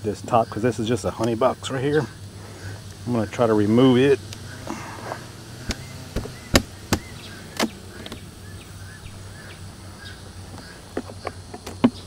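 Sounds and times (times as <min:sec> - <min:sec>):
hive tool cracking wooden box: 0:04.2 - 0:08.3, 0:10.4 - 0:12.0.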